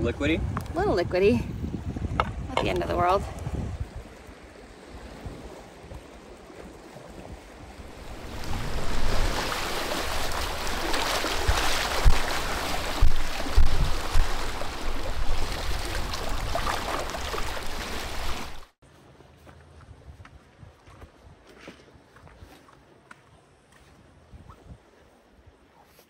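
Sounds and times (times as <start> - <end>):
waves splashing on rock: 7.8 - 18.7.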